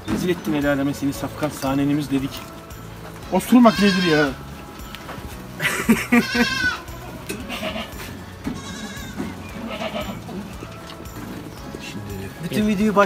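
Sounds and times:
goats bleating: 0:03.2 - 0:10.9.

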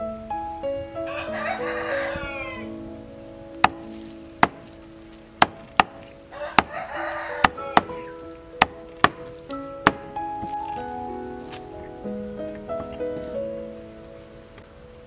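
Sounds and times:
rooster crowing: 0:01.1 - 0:02.8, 0:06.3 - 0:08.2.

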